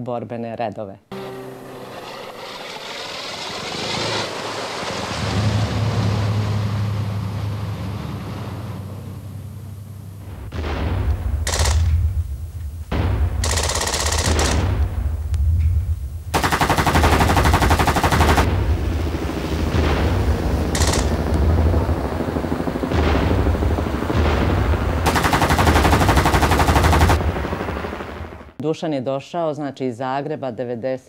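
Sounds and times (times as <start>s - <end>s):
low rumble: 3.4s - 28.6s
machine-gun fire: 10.2s - 12.3s, 12.9s - 15.3s, 16.3s - 28.6s.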